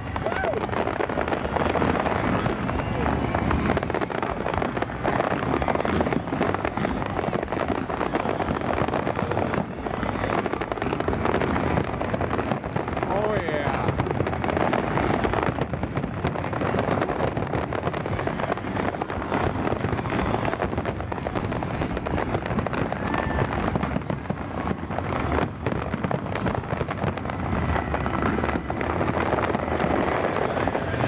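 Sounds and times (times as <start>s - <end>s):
fireworks bangs and crackles: 0.0s - 31.0s.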